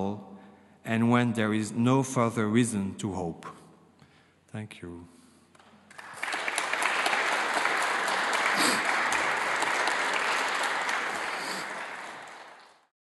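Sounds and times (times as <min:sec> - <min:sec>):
audience applauding: 0:05.6 - 0:12.9.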